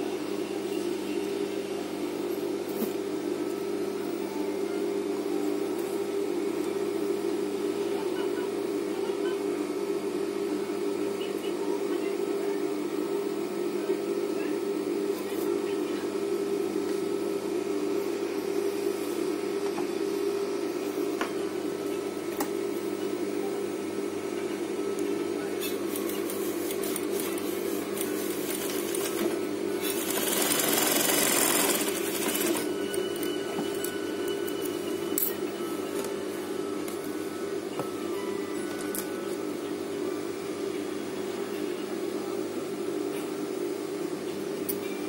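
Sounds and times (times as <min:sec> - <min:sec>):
industrial sewing machine running: 0:26.8 - 0:33.9.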